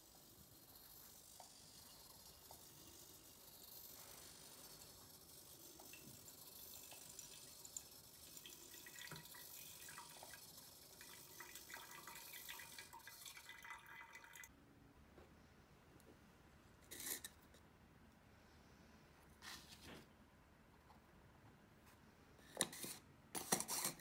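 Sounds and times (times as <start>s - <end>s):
water trickling onto paper filter: 0.7s - 14.5s.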